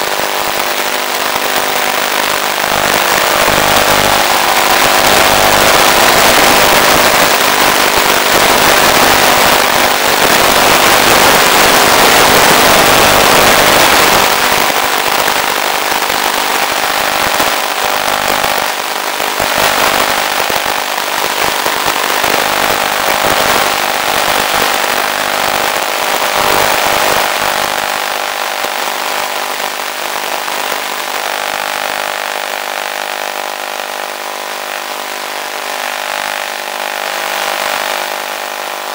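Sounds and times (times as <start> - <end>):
electric motor and propeller running: 1.2 - 28.7.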